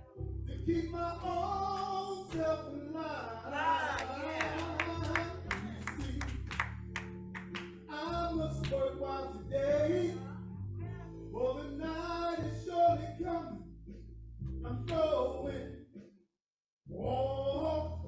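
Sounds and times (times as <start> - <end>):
worship singing with instruments: 0.0 - 13.7, 14.6 - 15.9
hand claps: 1.7 - 2.6, 4.0 - 7.9, 8.6 - 8.9, 14.9 - 15.1.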